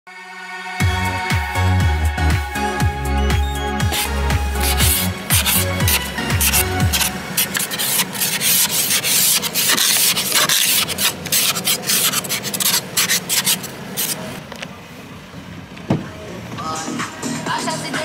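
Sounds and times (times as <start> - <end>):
ice scraper scraping windscreen: 3.8 - 14.4.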